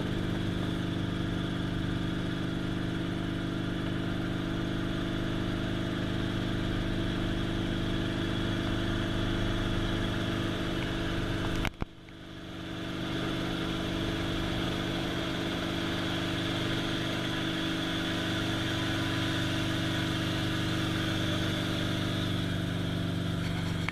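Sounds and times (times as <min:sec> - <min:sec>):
helicopter engine and rotor drone: 0:00.0 - 0:23.9.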